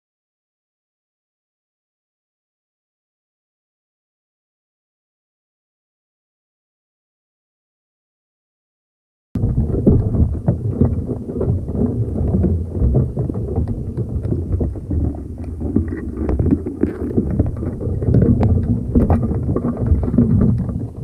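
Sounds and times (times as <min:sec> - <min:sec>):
crabs scratching and tapping: 0:09.4 - 0:21.0
underwater rumble of seawater: 0:09.4 - 0:21.0.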